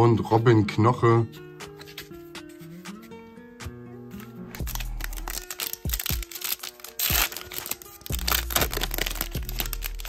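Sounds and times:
background music: 0:00.0 - 0:10.0
foil wrapper crinkling and tearing: 0:04.5 - 0:10.0.

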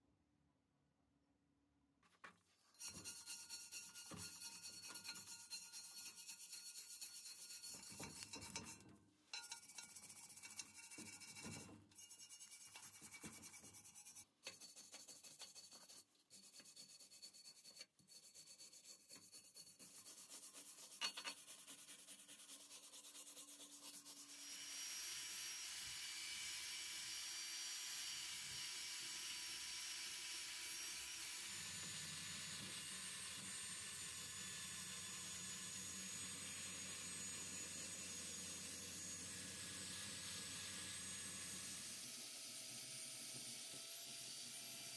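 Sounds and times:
wire brush scrubbing metal: 0:02.7 - 0:24.1.

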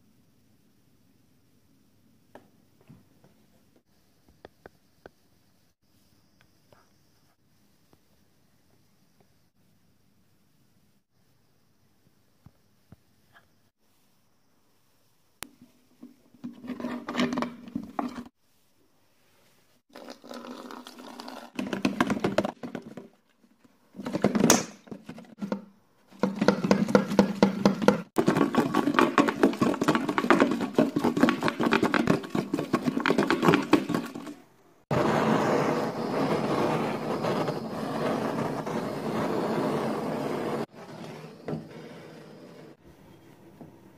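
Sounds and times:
gas torch hissing: 0:34.9 - 0:42.8.

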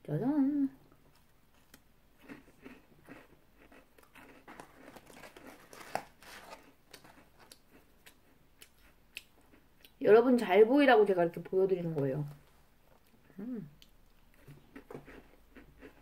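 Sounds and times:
crunchy cookie being chewed: 0:00.9 - 0:10.0, 0:12.9 - 0:16.0.

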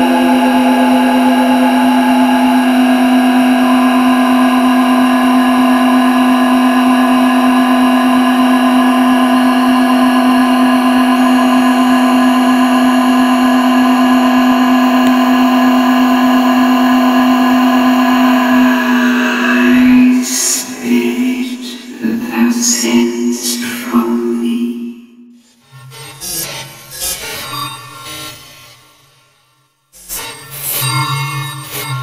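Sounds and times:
sustained voice drone: 0:00.0 - 0:25.6.

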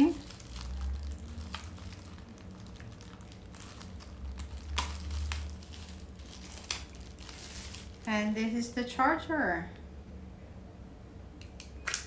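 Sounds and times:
plastic bag crinkling: 0:00.0 - 0:08.3.

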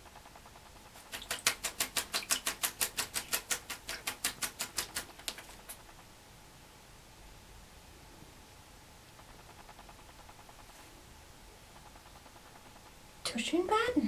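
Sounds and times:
bird flapping wet wings: 0:00.9 - 0:05.9.

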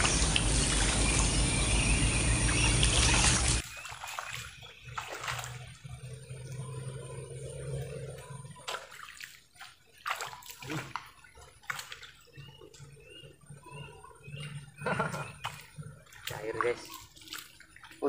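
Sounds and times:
sharp splashes: 0:00.0 - 0:05.9, 0:08.6 - 0:12.4, 0:15.4 - 0:18.0
water sloshing around wading feet: 0:02.8 - 0:06.0, 0:08.6 - 0:13.4, 0:14.3 - 0:18.0.

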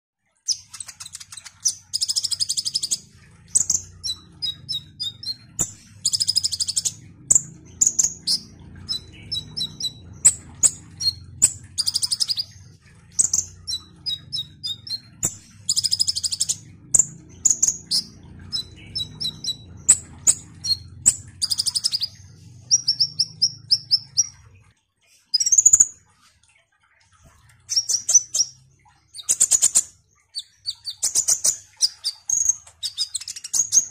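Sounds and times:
bird singing: 0:00.5 - 0:24.5, 0:27.6 - 0:33.9
faint low hum: 0:00.5 - 0:33.8.

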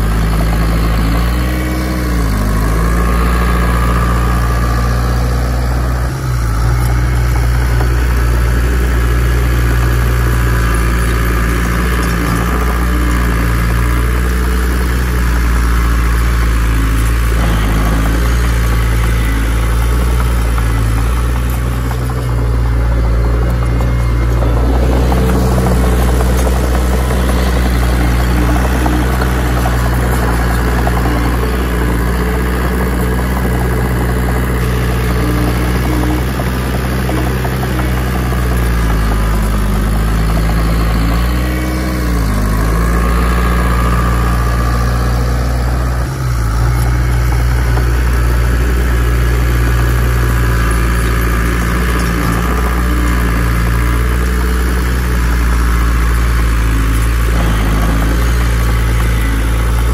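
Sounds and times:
heavy diesel engine droning: 0:00.0 - 0:59.9.

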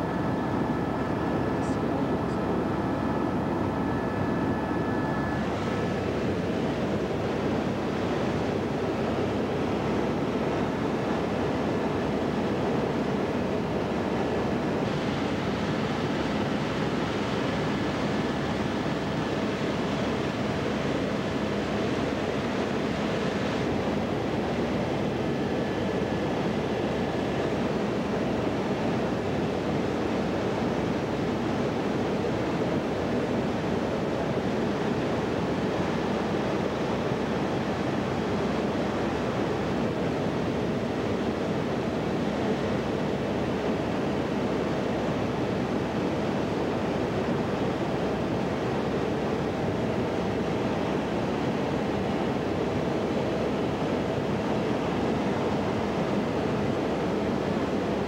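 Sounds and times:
aircraft cabin engine drone: 0:00.0 - 0:58.0
faint steady hum: 0:00.0 - 0:58.0.

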